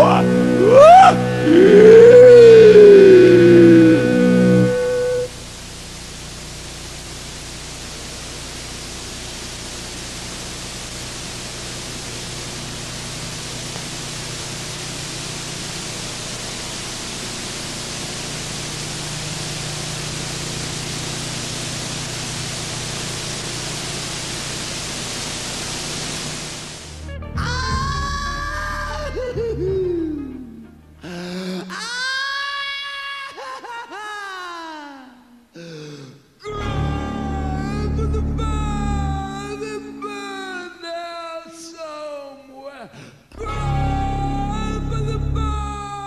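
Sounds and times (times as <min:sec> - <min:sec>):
static hiss: 0:00.0 - 0:27.1, 0:36.5 - 0:41.6.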